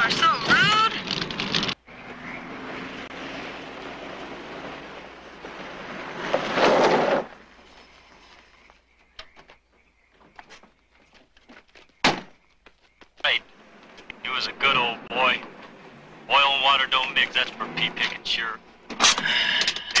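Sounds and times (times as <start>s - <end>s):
car skidding to a stop: 1.9s - 8.3s.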